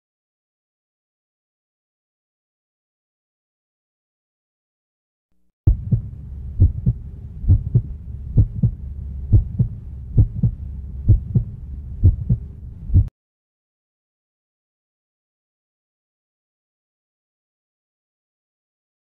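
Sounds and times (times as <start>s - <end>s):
heartbeat thumps: 5.7s - 13.1s
steady low hum: 5.7s - 13.1s.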